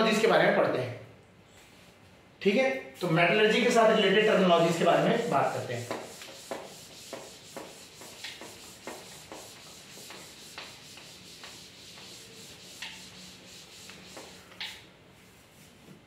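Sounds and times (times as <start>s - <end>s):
scratchy handwriting strokes: 3.8s - 14.6s.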